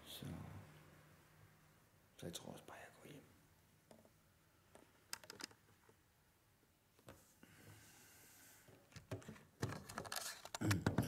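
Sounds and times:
clicks and knocks of handling: 0:04.7 - 0:06.0, 0:08.8 - 0:11.0
faint hiss: 0:07.1 - 0:08.9.

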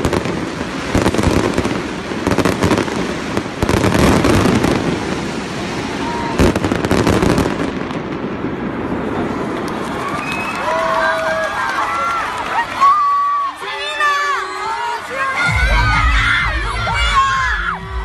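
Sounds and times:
pyrotechnics crackling and popping: 0:00.0 - 0:10.5
crowd noise: 0:00.0 - 0:18.0.

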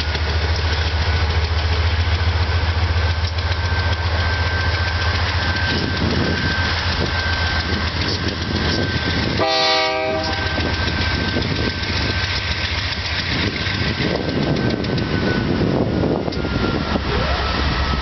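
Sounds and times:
freight train rumbling past: 0:00.0 - 0:18.0
train horn blast: 0:09.4 - 0:10.6.

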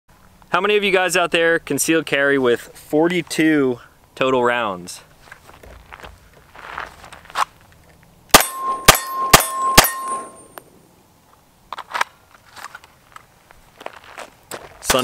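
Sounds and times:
pistol shots: 0:08.3 - 0:10.4
steel target ringing: 0:08.3 - 0:10.6.

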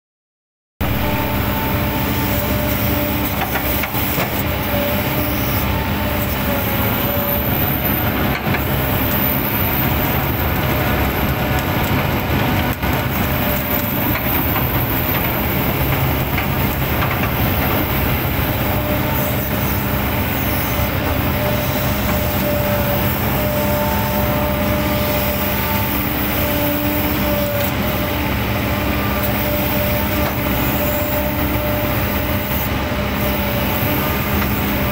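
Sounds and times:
steady machine tones: 0:00.8 - 0:27.2
excavator engine rumbling: 0:00.8 - 0:34.9.

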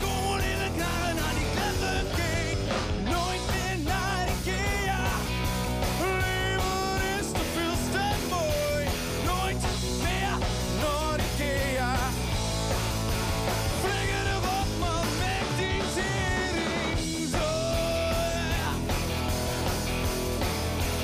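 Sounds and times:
man singing: 0:00.0 - 0:12.4, 0:13.6 - 0:19.0
drums: 0:00.0 - 0:21.0
electric guitars: 0:00.0 - 0:21.0.

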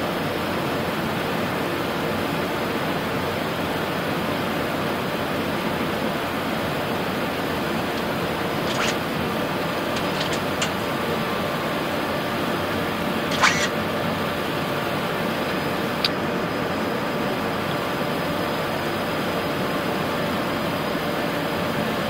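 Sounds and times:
aircraft cockpit air and engine noise: 0:00.0 - 0:22.0
faint steady hums: 0:00.0 - 0:22.0
faint high whine: 0:05.8 - 0:21.8
cockpit air noise: 0:06.6 - 0:16.9
short clicks: 0:07.9 - 0:09.1, 0:09.8 - 0:10.8, 0:13.3 - 0:13.8.

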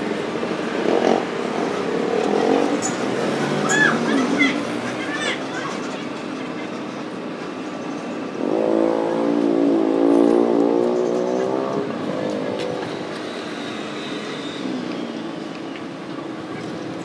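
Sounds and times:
vehicle engine revving: 0:00.0 - 0:05.6, 0:08.3 - 0:15.3.

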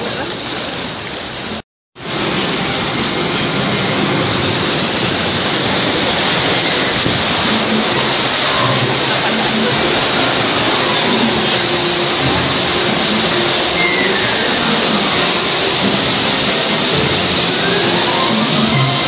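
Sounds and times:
rushing splashing river rapids: 0:00.0 - 0:19.0.

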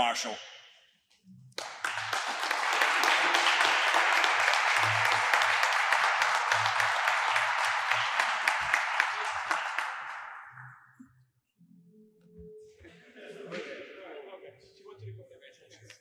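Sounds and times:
single sharp claps: 0:01.6 - 0:10.8
audience applauding: 0:01.6 - 0:10.9.

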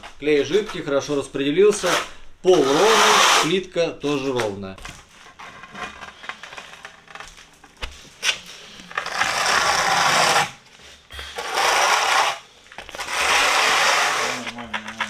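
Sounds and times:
trowel scraping adhesive: 0:01.7 - 0:03.6, 0:08.8 - 0:10.6, 0:11.2 - 0:15.0.

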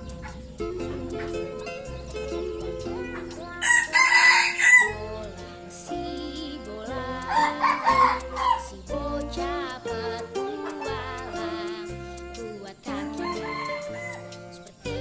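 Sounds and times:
background music with steady beat: 0:00.0 - 0:15.0
rooster crowing: 0:03.6 - 0:05.0, 0:07.3 - 0:08.6, 0:13.1 - 0:14.4.

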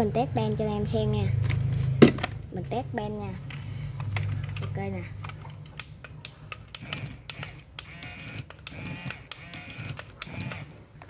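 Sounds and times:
gear clicks: 0:03.4 - 0:10.8
small gear motor whining: 0:06.7 - 0:10.9.

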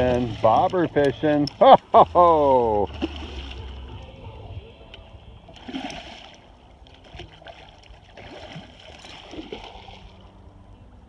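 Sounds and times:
fish thrashing in water: 0:02.6 - 0:03.9, 0:05.5 - 0:10.2
dog wading through water: 0:05.5 - 0:10.4.

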